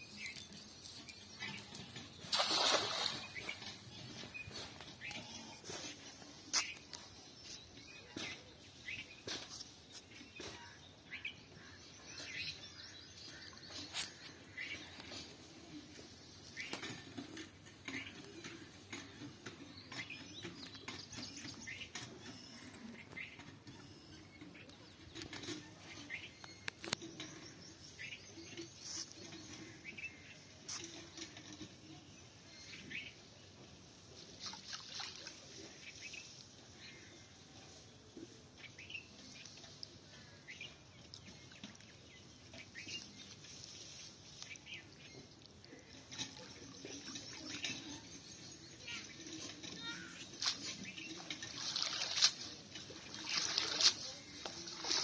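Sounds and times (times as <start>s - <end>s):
small birds chirping: 0.0s - 55.0s
water splashing and dripping: 1.1s - 3.9s, 34.3s - 36.5s, 39.2s - 55.0s.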